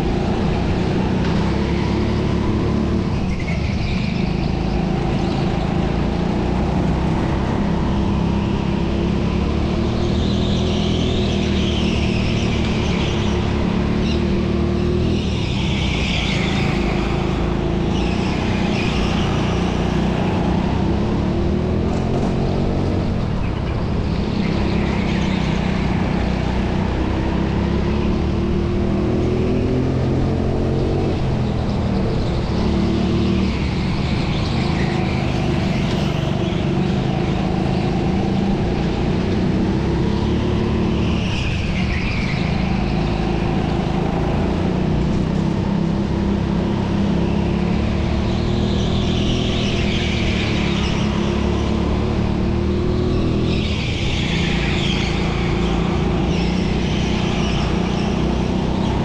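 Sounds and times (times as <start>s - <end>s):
go-kart engine running hard: 0.0s - 59.0s.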